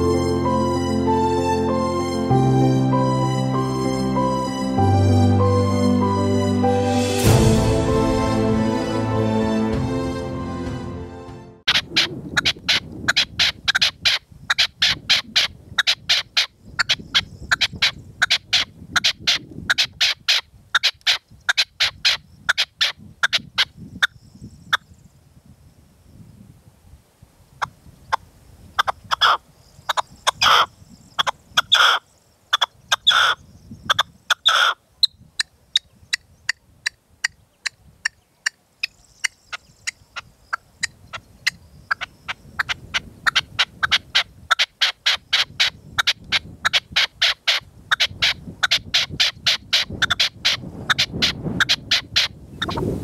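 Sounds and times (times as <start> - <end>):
wind rumbling on microphone: 11.6 - 53.0
partridge calling: 11.7 - 24.8, 28.8 - 52.8.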